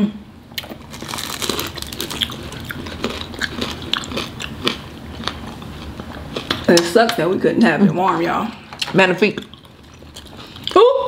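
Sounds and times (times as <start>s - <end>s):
crunchy bread chewing: 0.6s - 6.7s.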